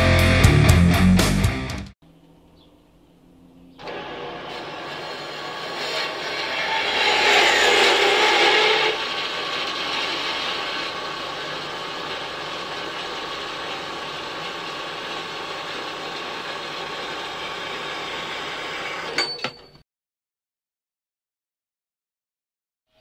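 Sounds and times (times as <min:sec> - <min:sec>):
metal-cutting bandsaw whirring: 0:03.8 - 0:19.8.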